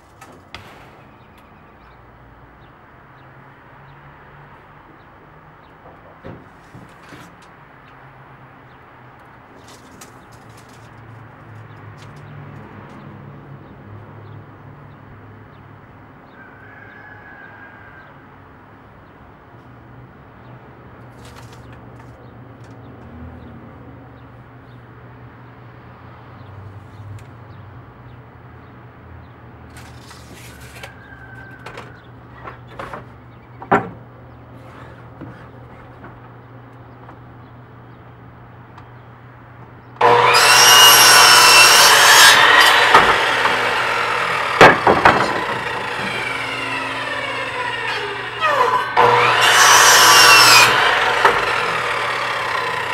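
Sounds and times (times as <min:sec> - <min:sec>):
wood clicking and knocking: 0:29.7 - 0:34.1, 0:44.6 - 0:46.4.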